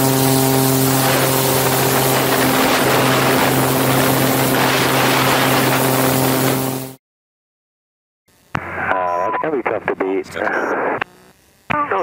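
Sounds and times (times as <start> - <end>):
airplane engine and propeller drone: 0.0 - 7.0
wind rushing on microphone: 0.9 - 6.6.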